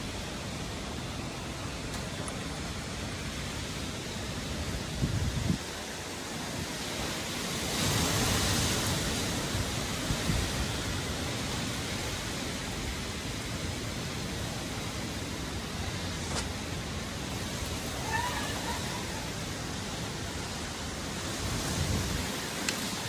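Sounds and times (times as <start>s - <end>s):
strong wind rushing through trees: 0.0s - 23.0s
wind buffeting microphone: 4.5s - 7.0s, 14.1s - 23.0s.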